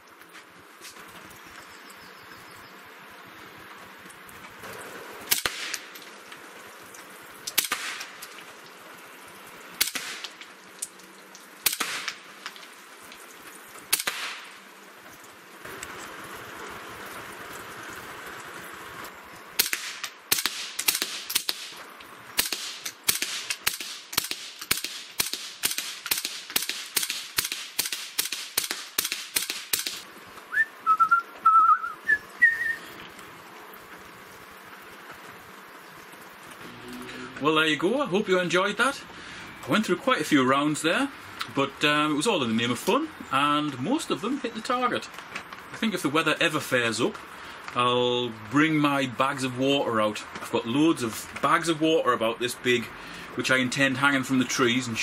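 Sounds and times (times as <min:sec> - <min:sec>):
rifle shots: 0:05.3 - 0:06.0, 0:07.6 - 0:08.2, 0:09.8 - 0:10.4, 0:11.6 - 0:12.3, 0:13.9 - 0:14.6, 0:19.6 - 0:21.8, 0:22.4 - 0:30.0.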